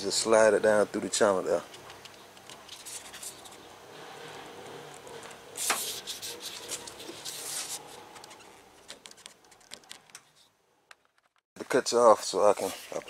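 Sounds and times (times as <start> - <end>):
rubber seal rubbing and scraping: 1.7 - 10.5.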